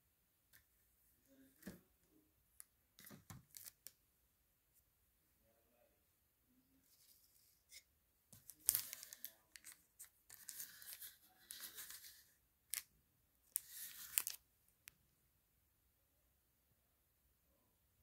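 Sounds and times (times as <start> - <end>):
plastic box crinkling and rubbing: 8.4 - 12.9.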